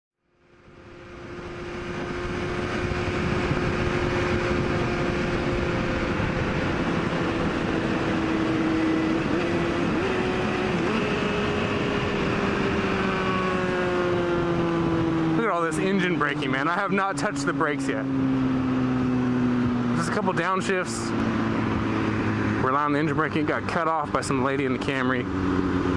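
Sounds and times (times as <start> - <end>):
motorcycle engine running: 0.3 - 25.9
wind rush: 1.3 - 17.5, 18.2 - 22.7.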